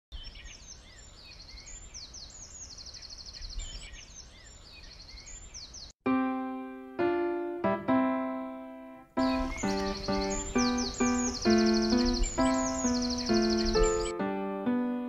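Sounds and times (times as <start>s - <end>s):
songbirds singing: 0.1s - 6.0s, 9.2s - 14.2s
piano chord: 6.0s - 15.0s.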